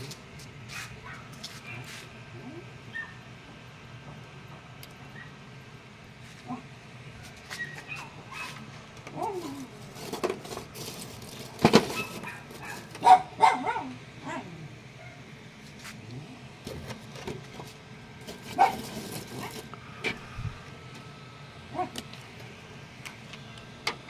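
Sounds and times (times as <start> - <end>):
dog barking: 7.9 - 8.6, 11.9 - 15.2, 18.6 - 18.9, 21.7 - 22.0.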